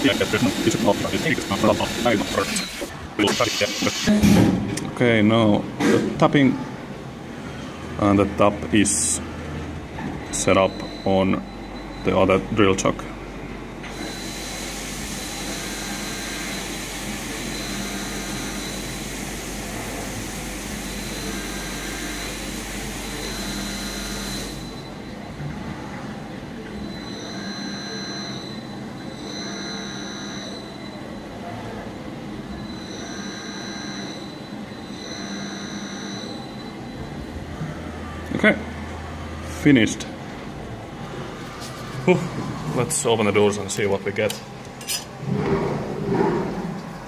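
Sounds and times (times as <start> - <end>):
milling machine spindle whine: 0.0 - 4.1, 13.8 - 25.4, 26.6 - 31.3, 32.5 - 37.3.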